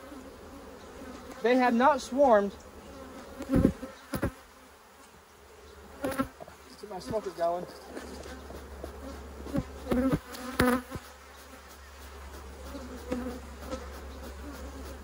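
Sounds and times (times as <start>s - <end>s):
honeybees buzzing: 0.0s - 15.0s
bee droning close past: 5.4s - 15.0s.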